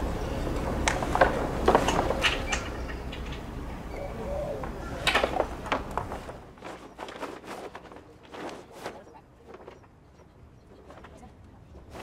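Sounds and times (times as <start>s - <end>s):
sail fittings clicking and knocking: 0.6s - 3.8s
sailcloth rustling: 4.8s - 12.0s.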